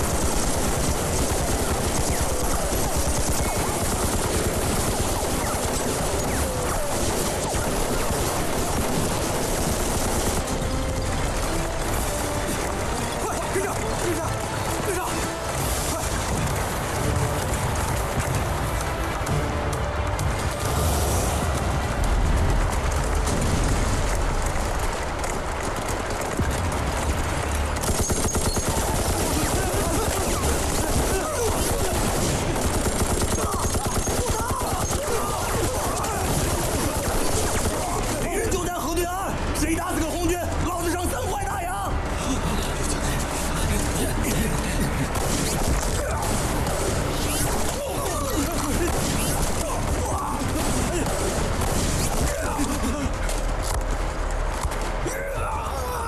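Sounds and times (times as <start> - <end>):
rifle and machine-gun fire: 0.0 - 41.6, 43.9 - 55.0.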